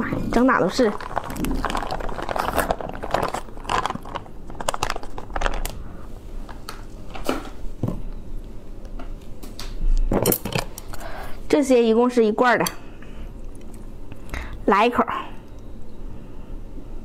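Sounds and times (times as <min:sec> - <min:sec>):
dense clicks and crackles: 0:00.4 - 0:05.8
plastic bag crinkling: 0:00.5 - 0:05.8.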